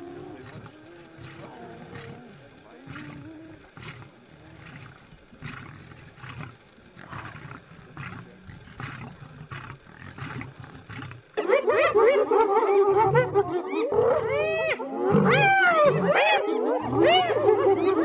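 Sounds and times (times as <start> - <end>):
lion growling: 0.0 - 18.0
loud wavering animal call: 10.4 - 18.0.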